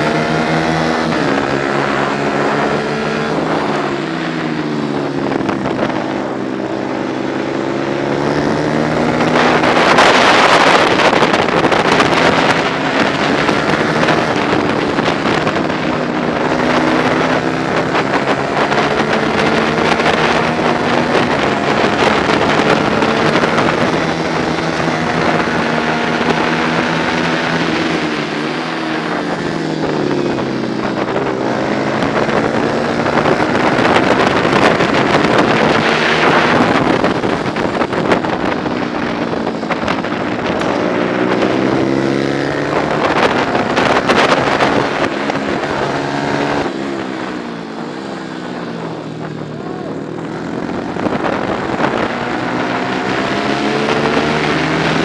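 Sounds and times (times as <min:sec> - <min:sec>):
motorcycle engine revving: 0:00.0 - 0:55.0
wind noise on microphone: 0:00.0 - 0:55.0.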